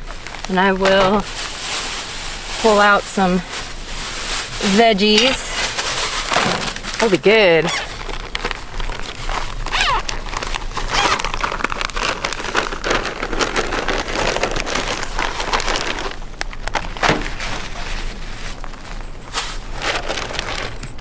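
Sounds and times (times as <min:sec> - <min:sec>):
plastic bags crinkling: 0:00.0 - 0:21.0.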